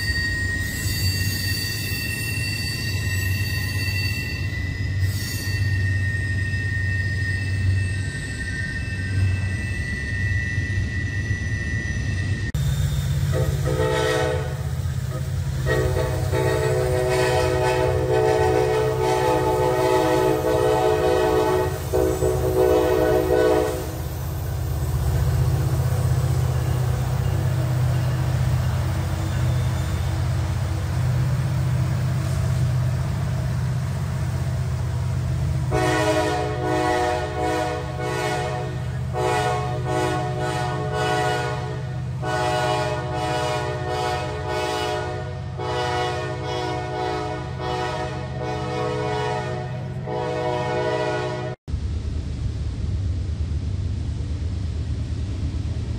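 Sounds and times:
freight train rumbling past: 0.0 - 55.9
locomotive air horn: 13.3 - 14.8, 15.5 - 24.0, 35.6 - 51.6.

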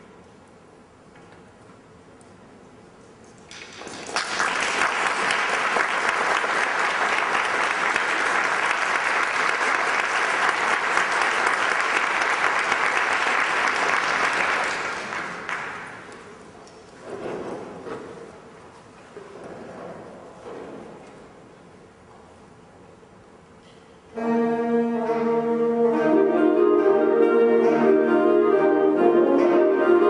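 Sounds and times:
audience applauding: 3.5 - 16.3.

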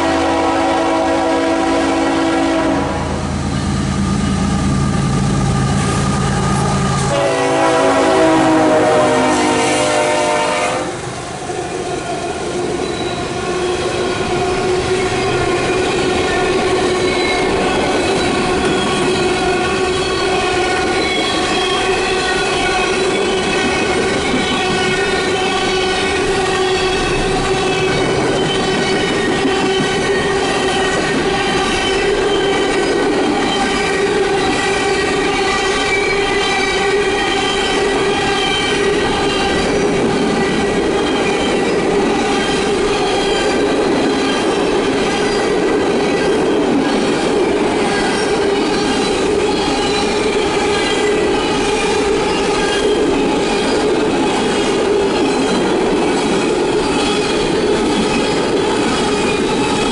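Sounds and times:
train horn blast: 0.0 - 4.0, 5.0 - 11.0, 18.6 - 28.2, 33.8 - 39.6
train cars running over rails: 0.0 - 59.9.

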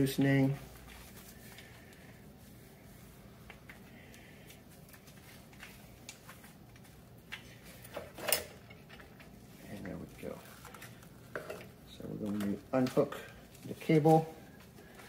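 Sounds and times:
clicks and handling noise: 10.4 - 13.8.

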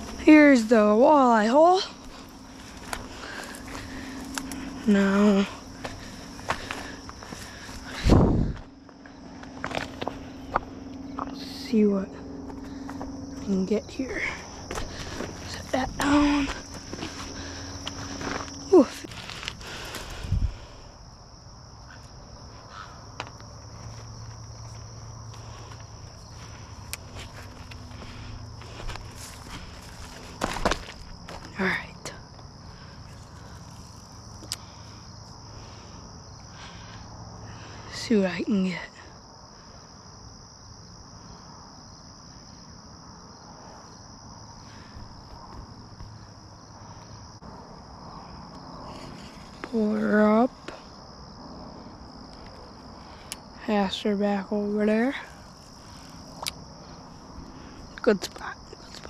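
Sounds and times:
faint low rumble: 0.0 - 22.6
insects chirring: 0.0 - 59.0.

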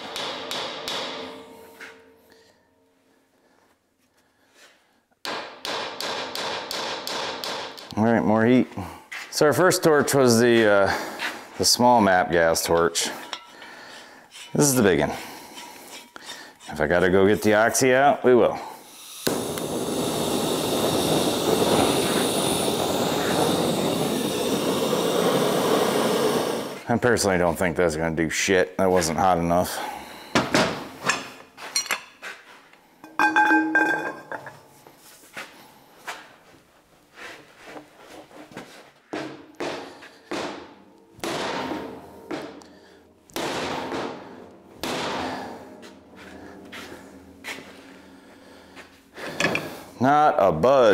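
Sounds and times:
metallic ring: 13.2 - 13.6, 33.0 - 34.6
gas torch flame rushing: 18.8 - 26.9.

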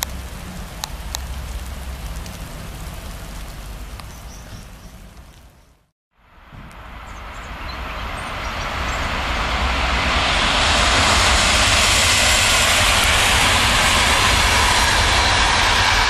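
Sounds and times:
train passing on rails: 6.2 - 16.0.

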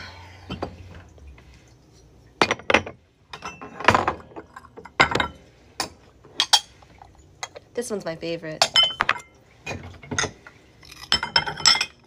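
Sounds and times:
ceramic plates clinking: 2.4 - 6.8, 8.6 - 10.4, 11.0 - 12.0.

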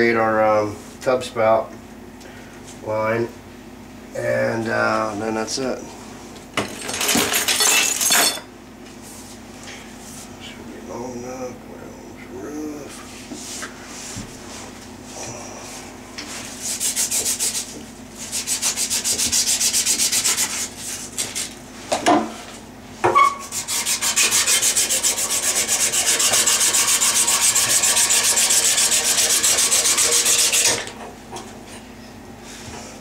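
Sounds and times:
copper pipe being sanded: 16.3 - 21.6, 23.4 - 30.8.

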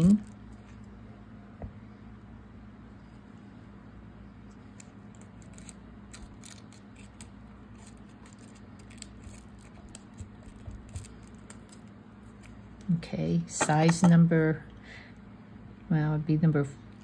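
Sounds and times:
steady low hum: 0.0 - 17.0
paper crinkling: 4.6 - 12.6.

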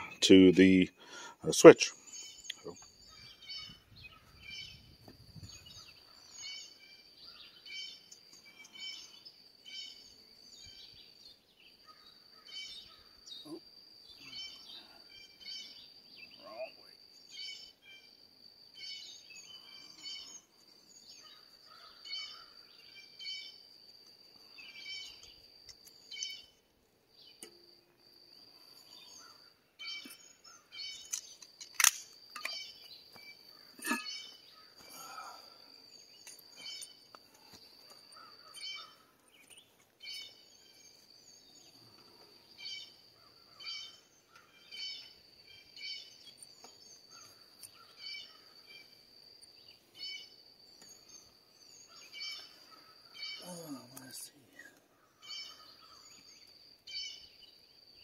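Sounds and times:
bird calling: 21.1 - 23.6, 32.4 - 35.6, 36.2 - 40.9, 50.0 - 57.2
sharp clicks: 31.0 - 32.6
high-pitched insect drone: 51.9 - 54.5.

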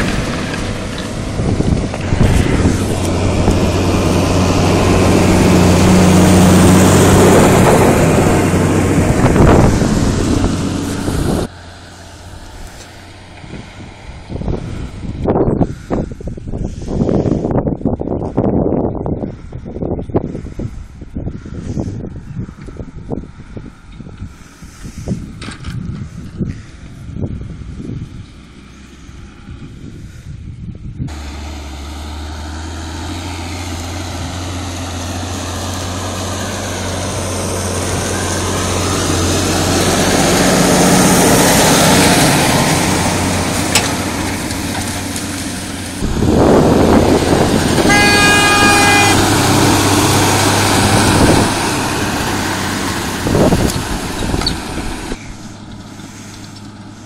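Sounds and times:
tractor diesel engine working: 0.0 - 57.0
horn: 47.7 - 51.1.

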